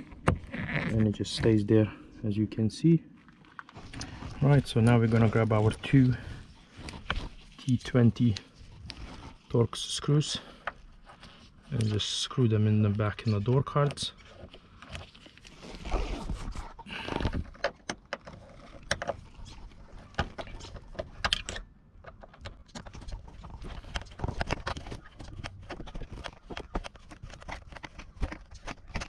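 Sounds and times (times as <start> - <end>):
rustling handling noise: 0.0 - 29.0.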